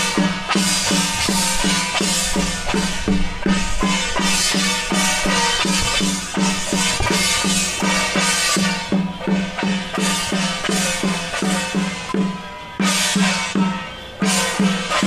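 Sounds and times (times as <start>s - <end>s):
drum beating steadily: 0.0s - 15.0s
loud cymbal crashes: 0.0s - 15.0s.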